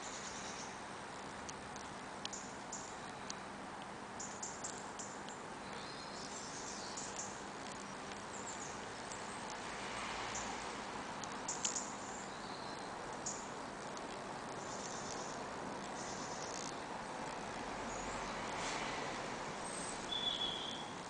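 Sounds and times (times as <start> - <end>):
small chirps: 0.0 - 3.5, 4.2 - 18.9, 19.6 - 21.0
faint high-pitched ticks: 0.0 - 18.8
outdoor background hiss: 0.0 - 21.0
sharp clicks: 7.0 - 9.6, 11.2 - 12.0.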